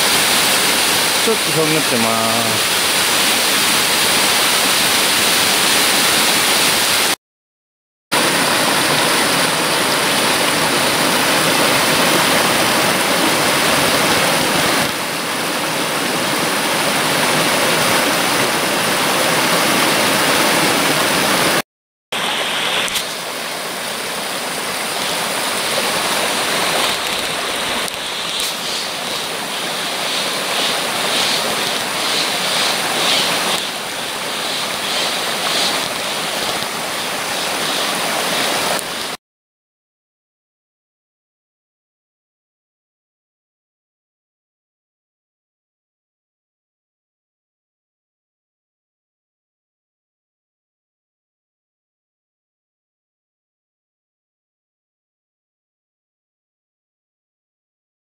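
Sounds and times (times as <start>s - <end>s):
stream rushing over rocks: 0.0s - 7.2s, 8.2s - 21.6s, 22.2s - 39.2s.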